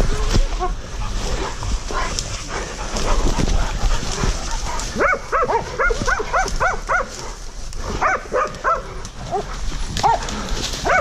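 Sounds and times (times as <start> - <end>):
footsteps through dry grass: 0.0 - 11.0
dogs barking rapidly: 1.6 - 11.0.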